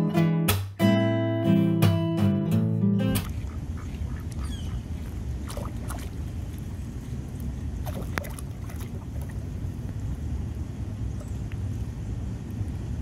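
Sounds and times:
wind rumble on microphone: 3.1 - 13.0
bird calls: 3.2 - 5.7.

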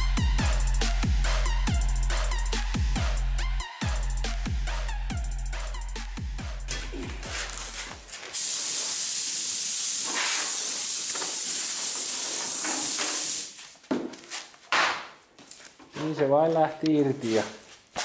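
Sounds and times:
compressed air blowgun hissing: 6.6 - 13.6.

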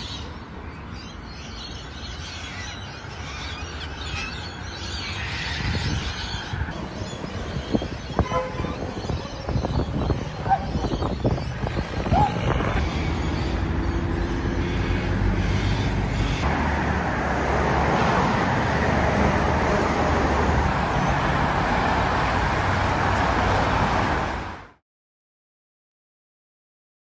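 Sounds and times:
cars passing: 2.3 - 24.8
heavy truck passing: 11.7 - 24.8.

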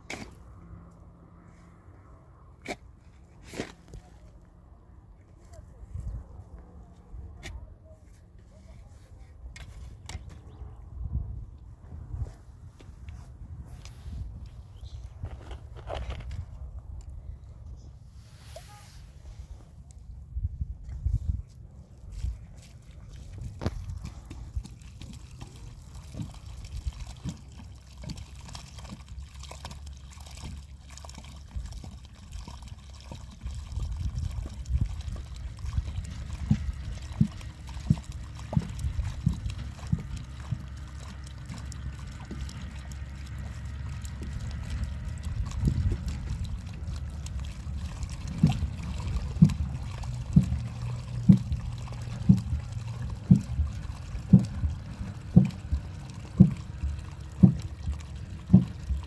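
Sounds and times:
water pouring onto soil: 21.8 - 59.0
short low knocks: 51.2 - 59.0.

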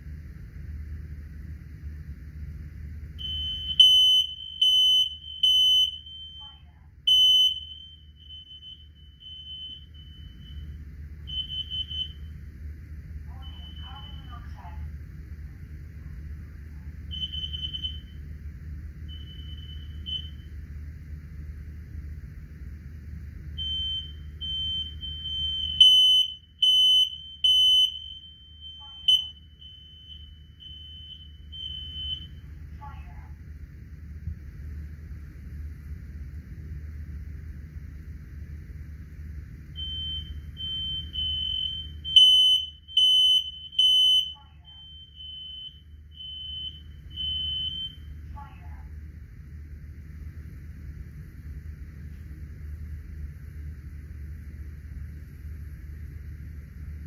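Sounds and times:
smoke alarm beeping: 3.2 - 12.4, 13.3 - 14.6, 17.1 - 18.2, 19.1 - 20.6, 23.6 - 32.6, 39.7 - 48.3.

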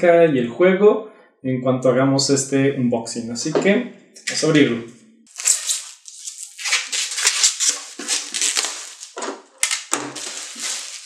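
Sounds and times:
plastic shrink wrap crinkling: 5.3 - 11.0.

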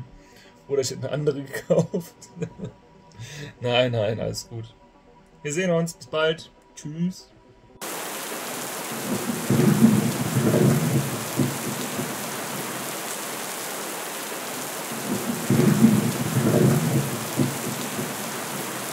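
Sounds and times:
steady rain: 7.8 - 18.9
thunder rolling: 7.8 - 18.9.

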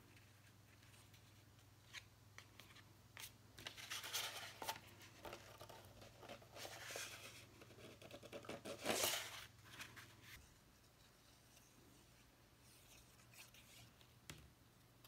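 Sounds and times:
paper rustling and sliding: 3.6 - 10.5.

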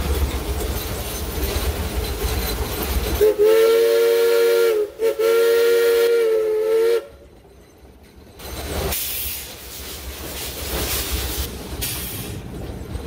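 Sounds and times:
wheels rumbling on track: 0.0 - 13.0
steam locomotive whistle: 3.2 - 7.2.

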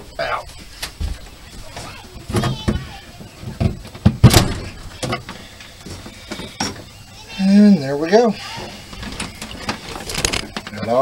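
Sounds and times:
wires rubbing and scraping: 4.9 - 11.0.

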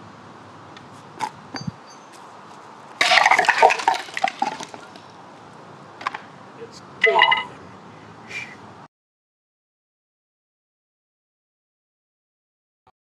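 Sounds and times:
broken pieces clattering on asphalt: 3.0 - 5.1.

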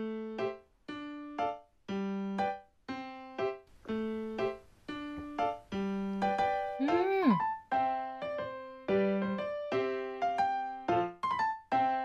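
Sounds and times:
piano-like keyboard notes: 0.0 - 12.0.

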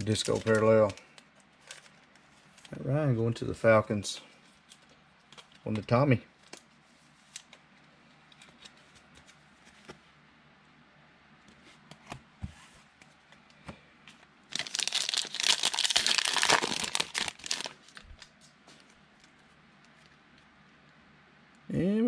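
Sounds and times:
plastic wrapper tearing: 0.0 - 2.8, 14.5 - 18.3.

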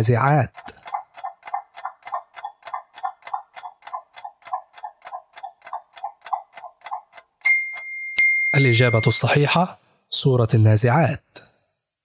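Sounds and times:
clock ticking quickly: 0.0 - 7.9.

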